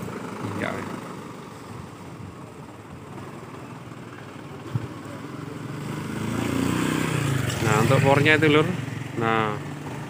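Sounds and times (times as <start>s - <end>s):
truck engine idling: 0.0s - 5.6s
motorcycle engine approaching: 0.0s - 10.0s.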